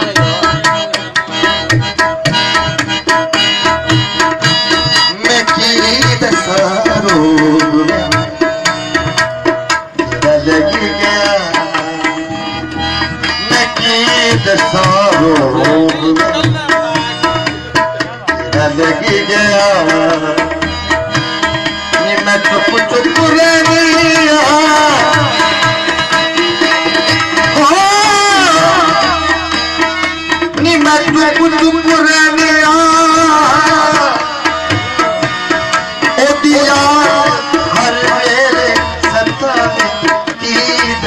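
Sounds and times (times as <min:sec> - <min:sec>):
tabla playing: 0:00.0 - 0:41.0.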